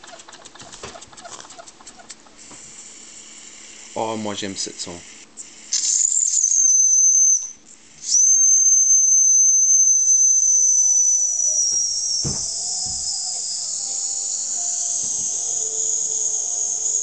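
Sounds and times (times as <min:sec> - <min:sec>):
steam hiss: 0:02.4 - 0:17.0
steam whistle blasts: 0:06.3 - 0:17.0.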